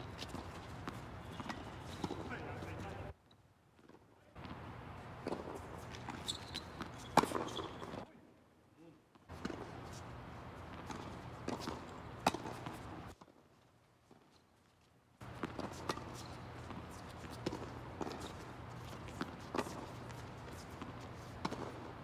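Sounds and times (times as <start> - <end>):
tennis balls bouncing on hard court: 0.0 - 3.0, 3.8 - 8.0, 9.3 - 10.0, 10.6 - 13.3, 15.2 - 22.0
tennis balls struck by rackets: 0.1 - 3.0, 3.8 - 8.0, 9.3 - 9.8, 10.6 - 13.3, 15.2 - 22.0.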